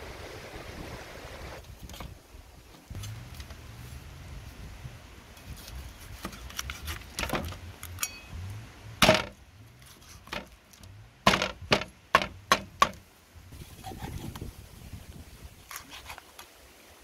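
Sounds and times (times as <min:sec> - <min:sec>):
cleaver chopping on wooden block: 0:09.0 - 0:09.3, 0:11.3 - 0:13.0.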